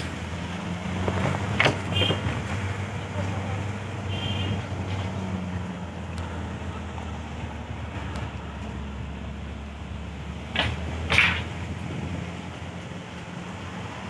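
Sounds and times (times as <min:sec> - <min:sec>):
car engine and road hum: 0:00.0 - 0:14.0.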